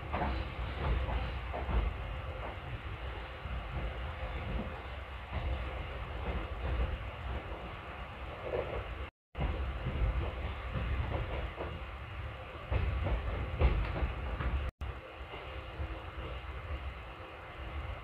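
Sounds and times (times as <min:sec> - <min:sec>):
train rumbling: 0:00.0 - 0:18.0.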